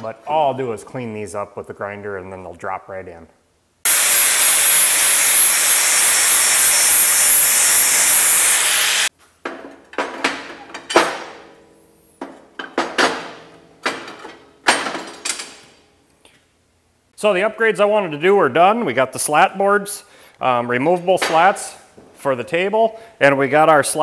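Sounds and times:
angle grinder grinding steel: 0:03.9 - 0:09.1.

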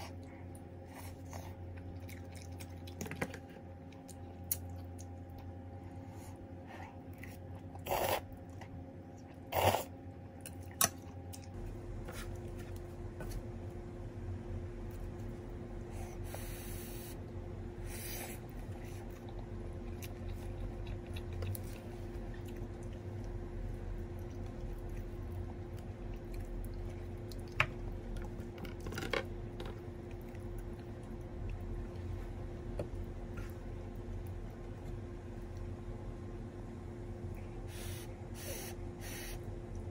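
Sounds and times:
steady low hum: 0:00.0 - 0:39.9
slurping noodles: 0:07.8 - 0:08.4, 0:09.5 - 0:10.0.

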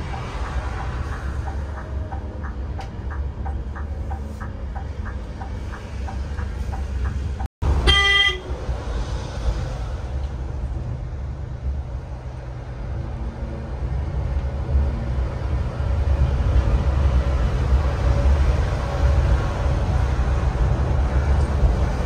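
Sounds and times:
bus engine rumble: 0:00.0 - 0:22.0
vehicle horn toot: 0:07.8 - 0:08.5.

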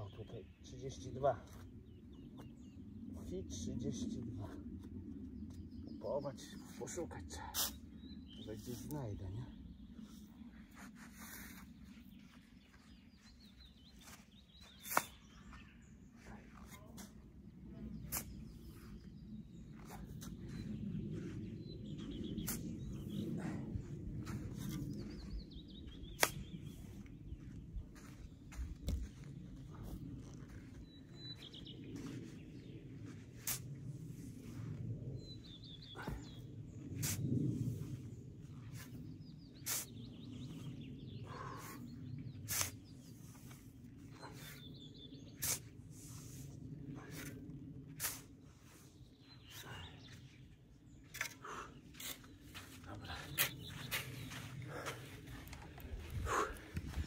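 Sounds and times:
small bird singing: 0:00.0 - 0:04.6, 0:05.4 - 0:33.6, 0:34.4 - 0:45.8, 0:47.0 - 0:57.0
low background rumble: 0:15.4 - 0:57.0
bird chirps: 0:24.3 - 0:33.2, 0:51.9 - 0:55.4.

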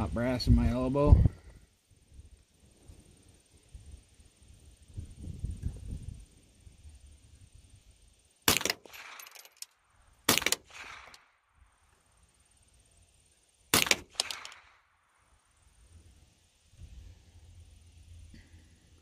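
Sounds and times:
rifle shots with echo: 0:08.4 - 0:09.5, 0:10.2 - 0:11.4, 0:13.7 - 0:15.1.

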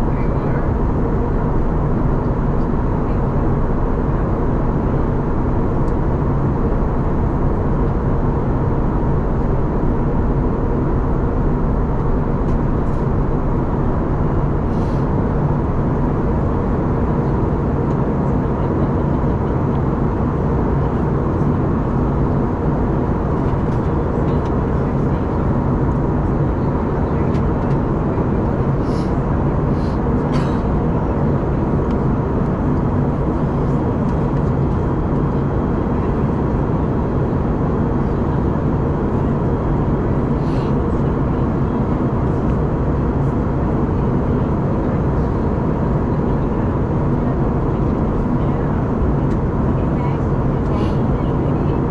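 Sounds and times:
airplane cabin engine roar: 0:00.0 - 0:51.9.

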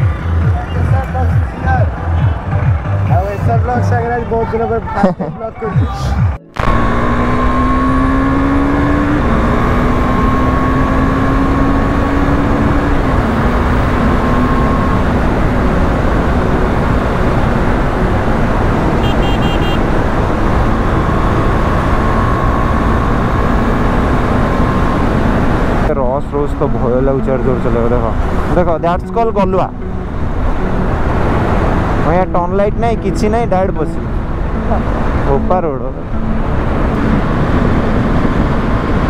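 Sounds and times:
wind rush: 0:36.4 - 0:39.0.

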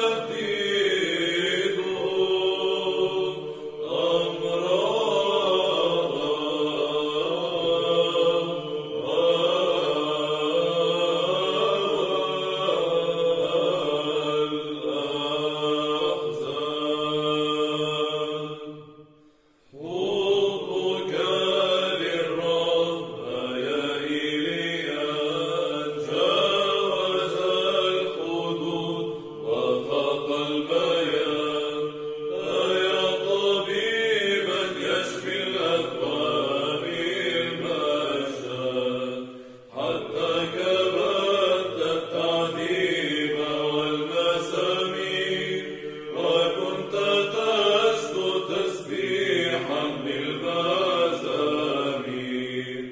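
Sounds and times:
choir of monks chanting: 0:00.0 - 0:52.9.

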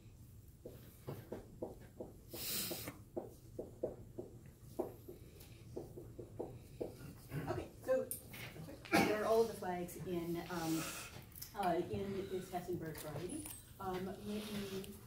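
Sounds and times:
marker writing on a whiteboard: 0:00.6 - 0:07.3.

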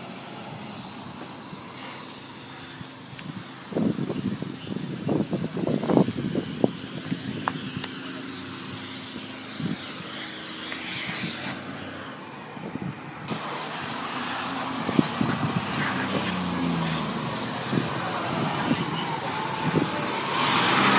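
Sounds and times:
truck engine idling: 0:00.0 - 0:20.9.

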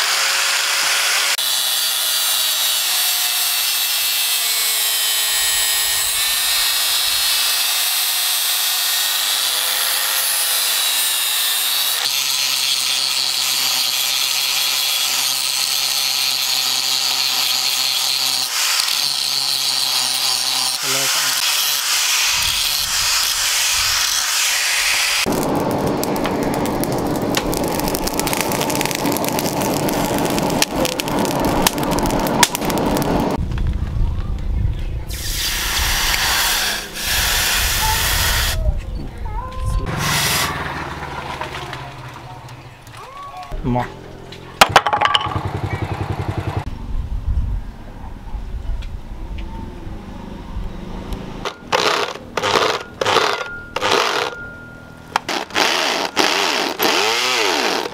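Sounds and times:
angle grinder grinding steel: 0:00.0 - 0:33.4, 0:35.2 - 0:38.6, 0:39.8 - 0:41.9, 0:51.4 - 0:57.9
low rushing noise: 0:24.8 - 0:35.1.

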